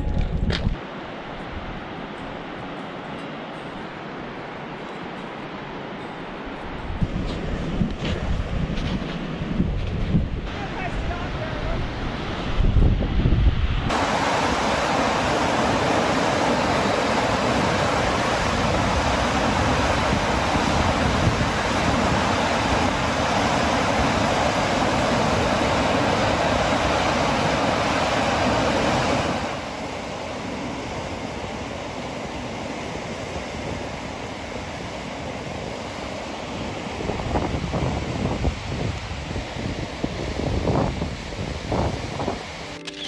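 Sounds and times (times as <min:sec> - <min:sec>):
waterfall rushing over rock: 0:13.9 - 0:42.7.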